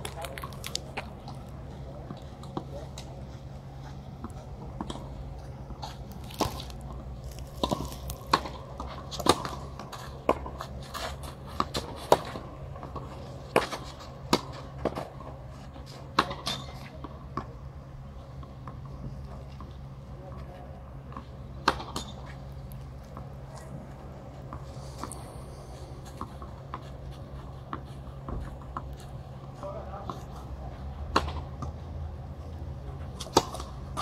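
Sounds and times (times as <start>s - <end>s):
steady low hum: 0.0s - 34.0s
tennis ball hitting racket: 33.2s - 34.0s.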